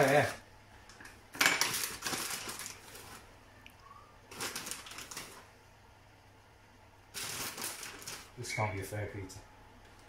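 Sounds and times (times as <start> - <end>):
plastic bag crinkling: 0.0 - 0.4, 1.4 - 3.4, 4.3 - 5.5, 7.1 - 8.5.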